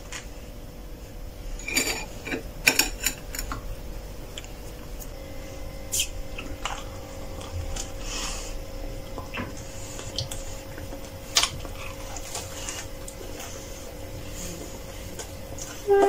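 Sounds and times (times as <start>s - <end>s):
faint steady hum: 0.0s - 16.0s
crunchy chewing: 5.9s - 15.8s.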